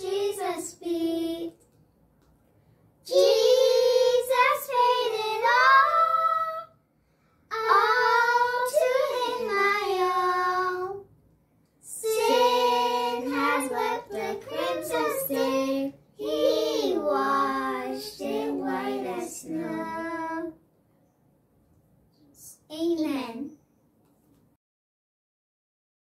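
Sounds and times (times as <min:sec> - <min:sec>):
girls singing together: 0:00.0 - 0:01.6, 0:03.1 - 0:06.7, 0:07.5 - 0:11.1, 0:11.9 - 0:20.6.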